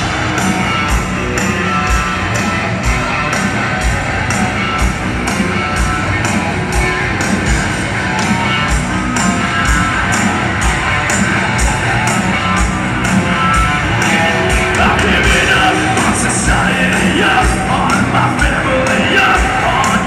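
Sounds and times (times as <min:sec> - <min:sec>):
distorted electric guitars: 0:00.0 - 0:20.0
person singing: 0:14.1 - 0:20.0.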